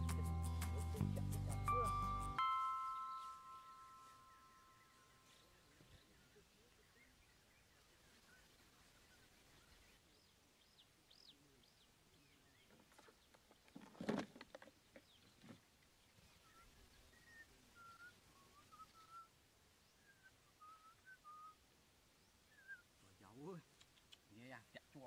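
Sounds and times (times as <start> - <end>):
small bird chirps and whistles: 22.5 - 22.9.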